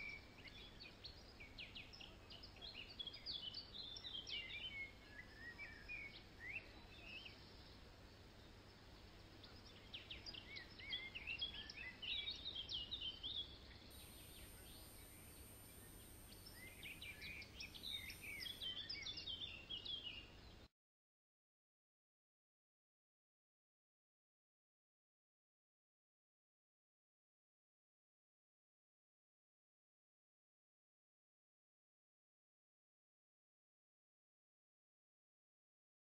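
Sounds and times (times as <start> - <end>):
birds chirping and trilling: 0.0 - 20.7.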